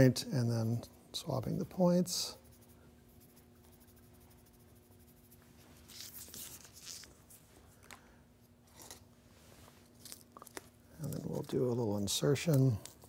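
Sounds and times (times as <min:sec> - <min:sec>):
faint steady hum: 0:00.0 - 0:13.0
soft scratchy rustles: 0:08.8 - 0:13.0.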